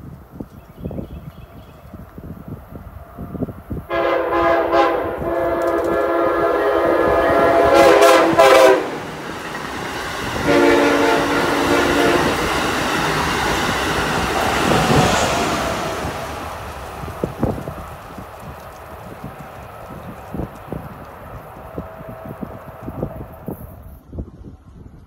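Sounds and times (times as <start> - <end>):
train passing with rail clatter: 0.0 - 25.0
train horn blasts: 3.9 - 9.3, 10.3 - 12.8.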